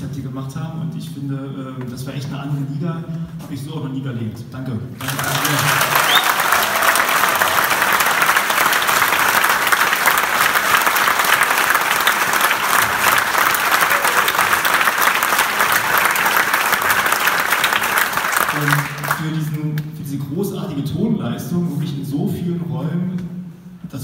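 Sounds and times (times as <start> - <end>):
crowd applauding: 5.0 - 19.6.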